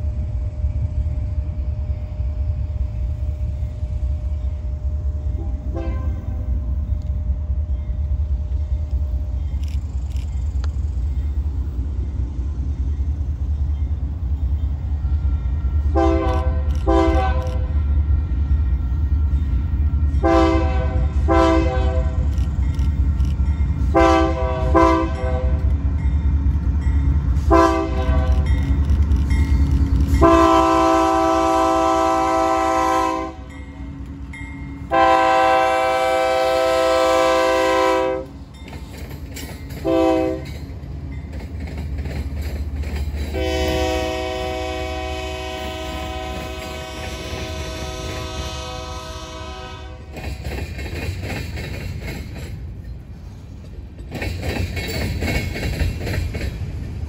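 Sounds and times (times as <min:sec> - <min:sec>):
locomotive engine rumble: 0:00.0 - 0:57.0
train horn blasts: 0:05.2 - 0:06.6, 0:15.0 - 0:22.3, 0:23.8 - 0:25.8, 0:27.4 - 0:28.8, 0:30.1 - 0:34.0, 0:34.8 - 0:38.4, 0:39.8 - 0:40.6, 0:43.3 - 0:50.2.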